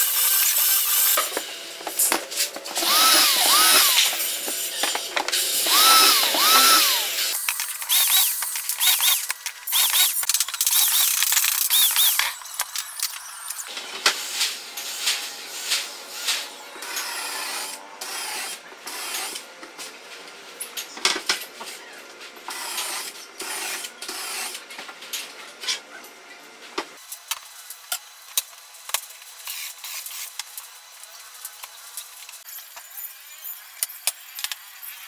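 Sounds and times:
cordless drill into wood: 2.8s - 4.9s, 5.5s - 12.3s.

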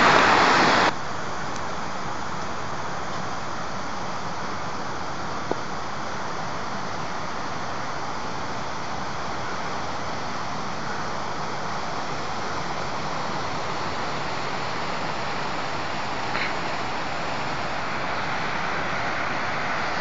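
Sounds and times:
waterfall rushing: 0.0s - 0.9s, 9.0s - 20.0s.

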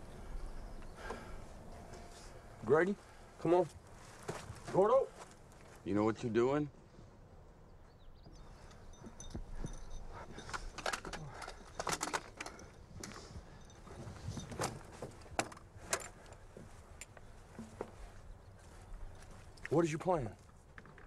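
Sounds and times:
metallic clinks on steel hull: 8.3s - 14.8s.

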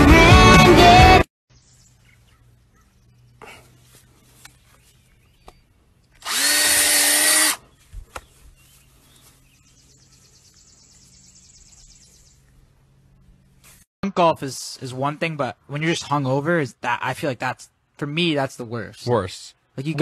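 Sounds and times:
power drill drilling into ground: 6.2s - 7.6s.

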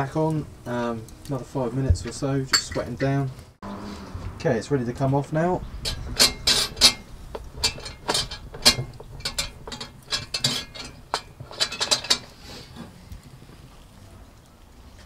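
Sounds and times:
metal pot clanking on steel rack: 2.5s - 3.2s, 5.8s - 12.4s.

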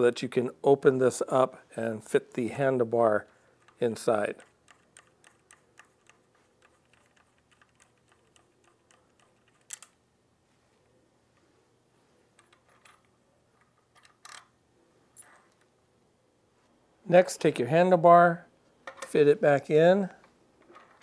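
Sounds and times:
bolt ticking and clicking: 3.2s - 10.0s.

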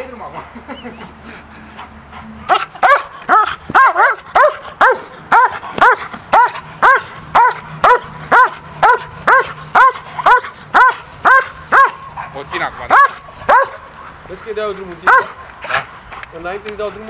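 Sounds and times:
dog barking: 2.5s - 13.9s, 15.0s - 15.4s.

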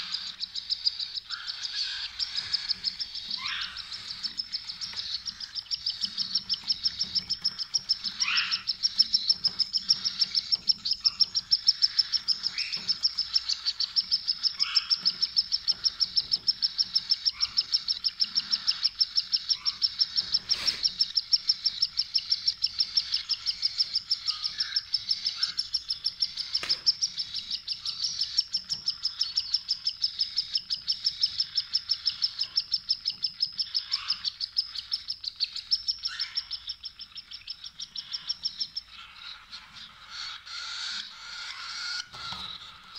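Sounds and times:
cockatiels chirping: 0.0s - 42.9s
short sliding bird calls: 20.3s - 21.0s.

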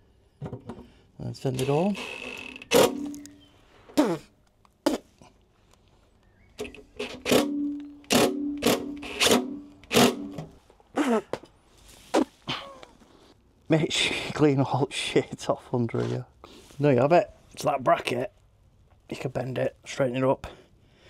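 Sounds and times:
cordless drill whirring: 2.0s - 3.1s, 6.6s - 10.4s
drill motor humming with clicks: 6.6s - 10.4s.

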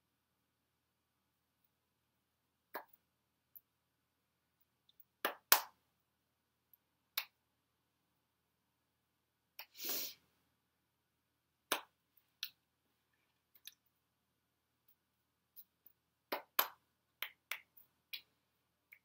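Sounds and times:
hands slapping and tapping: 2.7s - 3.0s, 5.2s - 5.8s, 7.1s - 7.4s, 11.7s - 12.6s, 15.5s - 19.0s.

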